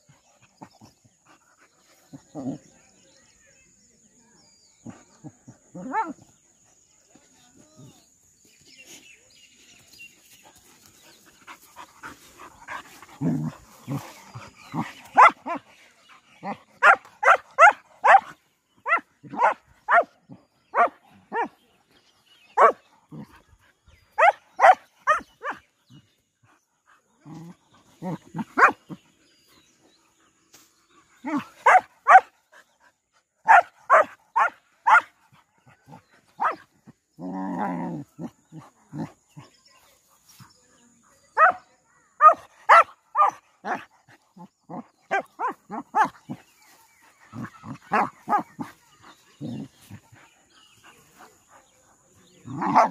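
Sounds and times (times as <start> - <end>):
dogs barking and yelping: 11.4 - 15.8, 16.4 - 21.5, 22.6 - 25.6, 31.2 - 32.3, 33.4 - 35.1, 42.2 - 51.6, 52.3 - 52.9
dog growling: 12.6 - 15.3, 37.1 - 39.4, 47.3 - 50.3, 52.3 - 52.9.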